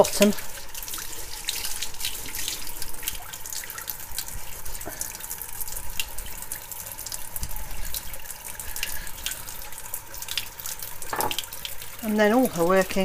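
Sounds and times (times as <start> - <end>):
water splashing and dripping: 0.0 - 13.0
tap running into sink: 11.1 - 11.6.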